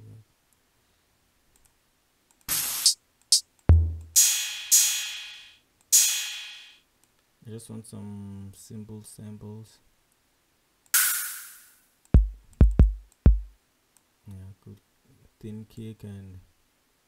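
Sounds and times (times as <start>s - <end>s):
click: 1.5s - 2.5s
crash cymbal ringing: 4.2s - 6.8s.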